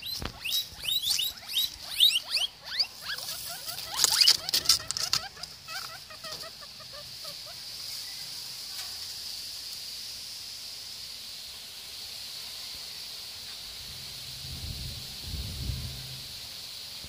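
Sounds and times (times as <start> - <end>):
guinea pigs wheeking: 0.0 - 7.6
grass rustling: 0.0 - 17.0.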